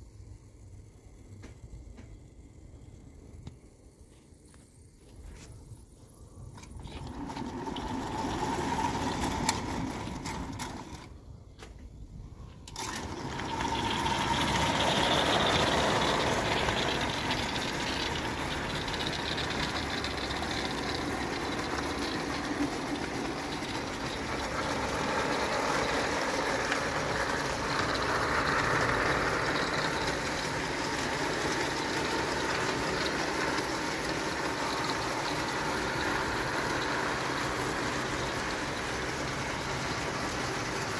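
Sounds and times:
steam locomotives hissing and clattering: 12.6 - 40.9.

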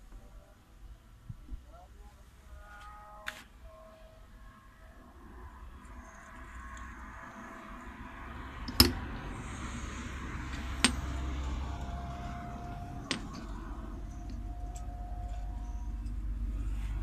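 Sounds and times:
steel parts clinking together: 13.0 - 13.6.

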